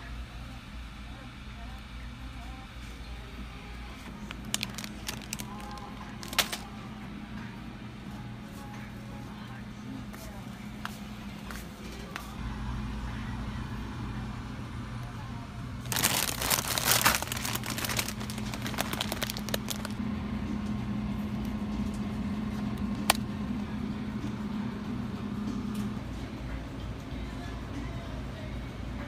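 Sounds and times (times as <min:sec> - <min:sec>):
low background hum: 0:00.0 - 0:29.0
plastic packaging crinkling: 0:04.1 - 0:06.7, 0:15.8 - 0:20.0.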